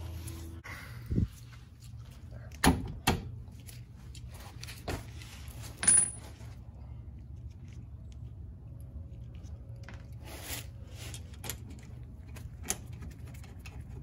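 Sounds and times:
metal tools clinking: 0:05.6 - 0:06.5.

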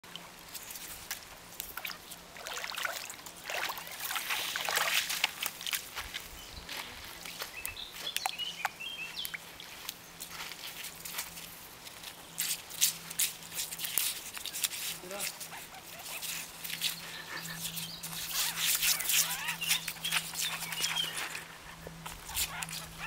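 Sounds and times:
small waves lapping on pebbles: 0:00.4 - 0:06.0
paws stepping on wet gravel: 0:03.4 - 0:23.0.

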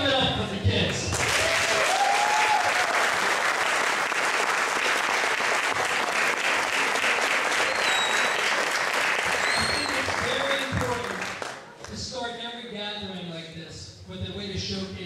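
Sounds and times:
audience applauding: 0:01.1 - 0:11.9
person cheering: 0:01.4 - 0:03.2
high whistle: 0:07.6 - 0:08.6, 0:09.2 - 0:10.3.

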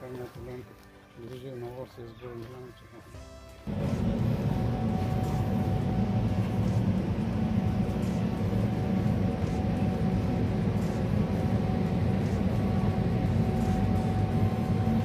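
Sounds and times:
thin steady whine: 0:03.6 - 0:15.0
ventilation fans droning: 0:03.6 - 0:15.0.

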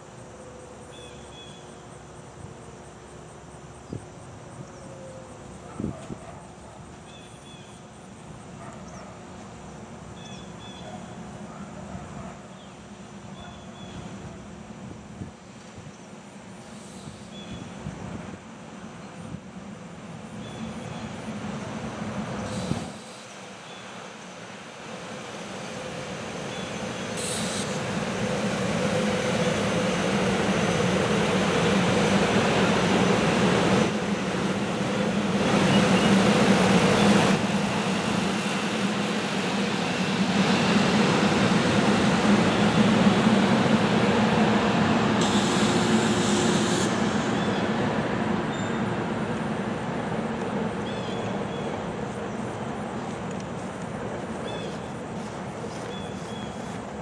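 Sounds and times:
train hum: 0:00.0 - 0:57.0
train wheels rumbling on rail: 0:01.0 - 0:57.0
short high-pitched hiss: 0:27.1 - 0:27.9.

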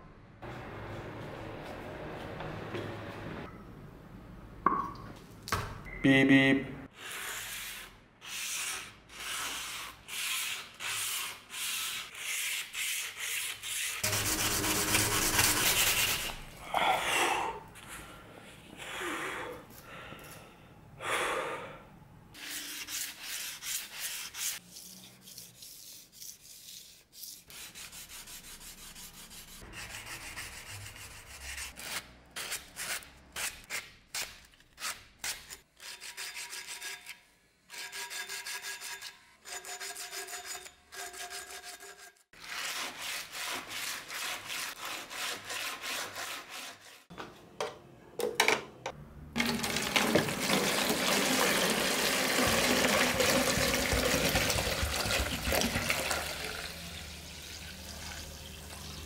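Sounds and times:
sandpaper rubbing on knife blade: 0:07.0 - 0:16.5, 0:22.4 - 0:47.1.

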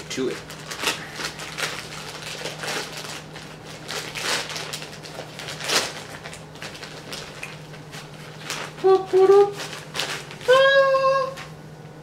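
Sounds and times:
plastic bag crinkling: 0:00.0 - 0:10.6.

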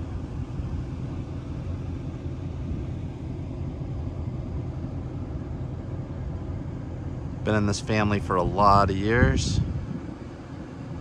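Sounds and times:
wind buffeting microphone: 0:08.2 - 0:11.0.

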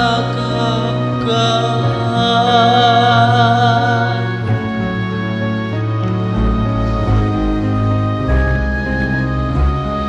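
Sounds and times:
slow ballad instrumental: 0:00.0 - 0:10.0.

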